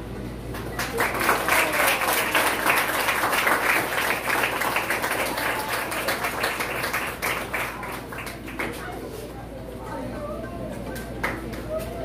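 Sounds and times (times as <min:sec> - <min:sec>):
audience applauding: 0:00.5 - 0:08.8.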